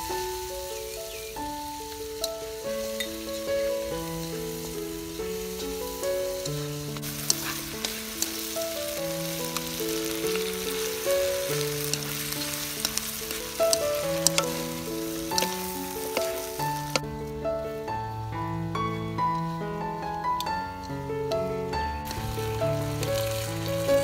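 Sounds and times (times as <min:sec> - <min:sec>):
green beans sizzling in a wok: 0:00.0 - 0:20.9, 0:22.0 - 0:24.0
chopsticks clicking against pan: 0:06.4 - 0:08.6, 0:09.5 - 0:17.0.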